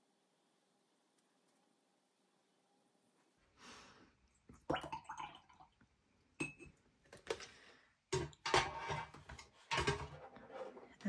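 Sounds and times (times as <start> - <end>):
metal tins clinking on table: 8.2 - 10.4.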